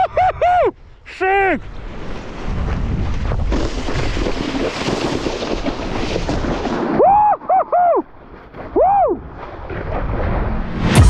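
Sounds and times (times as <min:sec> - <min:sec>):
wind buffeting microphone: 0:01.6 - 0:07.2.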